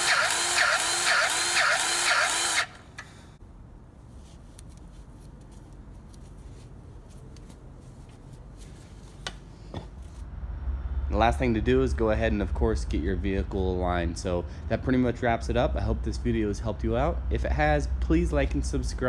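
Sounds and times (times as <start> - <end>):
grease gun pulsing whine: 0.0 - 3.1.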